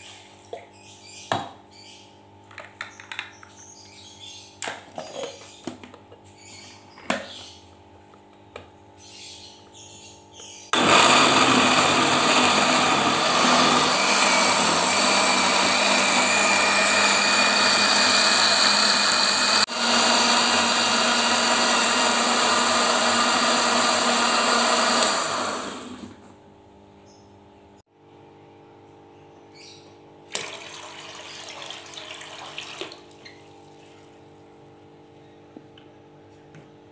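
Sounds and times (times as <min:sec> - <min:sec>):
blender motor running: 0:10.7 - 0:26.3.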